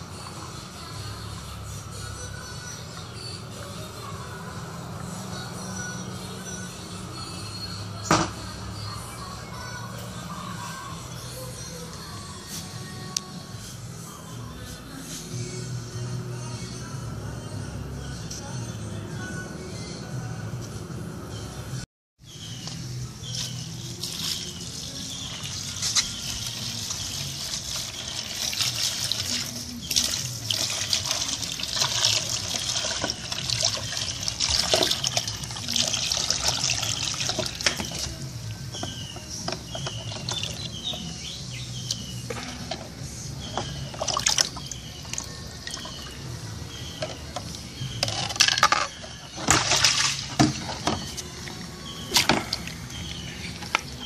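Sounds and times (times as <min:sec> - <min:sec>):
liquid sloshing in plastic basin: 0:25.3 - 0:38.2, 0:43.6 - 0:46.2, 0:48.4 - 0:53.8
splashes and knocks: 0:49.4 - 0:51.1.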